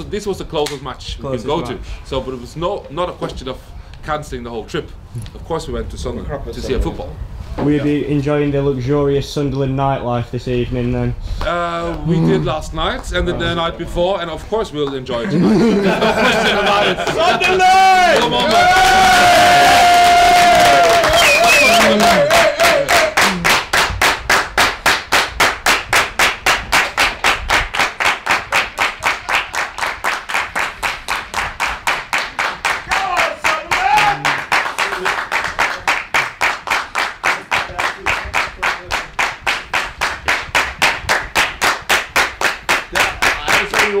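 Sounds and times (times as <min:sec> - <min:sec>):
crowd clapping in unison: 0:16.8 - 0:44.0
person shouting: 0:32.9 - 0:34.3.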